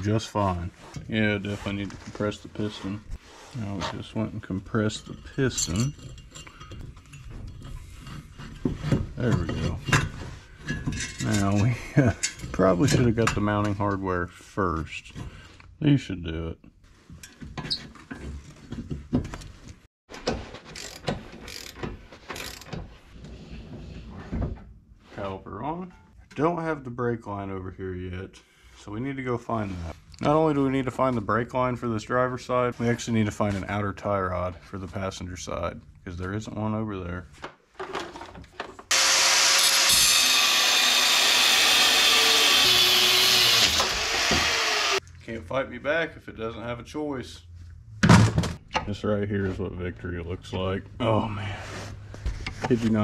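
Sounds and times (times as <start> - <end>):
ratchet wrench clicking: 20.8 - 21.8, 22.4 - 22.7
power tool cutting metal: 38.9 - 45.0.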